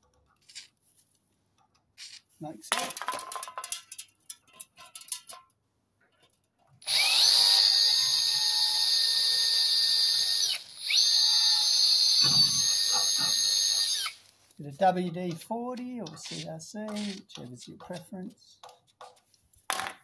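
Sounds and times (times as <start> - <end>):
cordless drill whining: 6.8 - 14.3.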